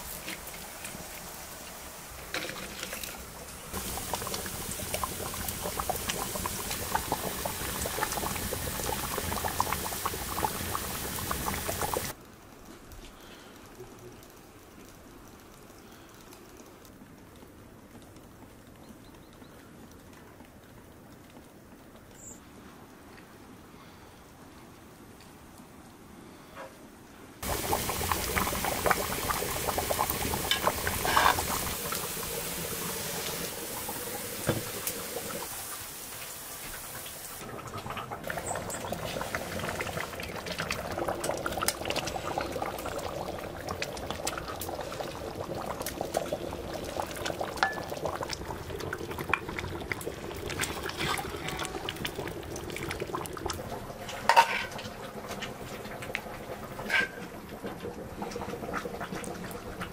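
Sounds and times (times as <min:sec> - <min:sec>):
steady hiss: 0:00.0 - 0:16.9, 0:22.2 - 0:37.5
stew boiling and bubbling: 0:00.0 - 0:59.9.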